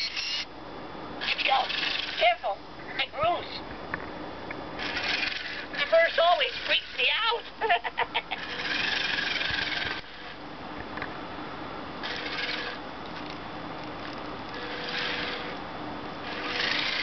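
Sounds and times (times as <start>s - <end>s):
toy robot motors whirring: 0.0s - 0.5s, 1.2s - 2.6s, 4.8s - 10.4s, 12.0s - 13.4s, 14.0s - 15.6s, 16.2s - 17.0s
faint hum: 0.0s - 17.0s.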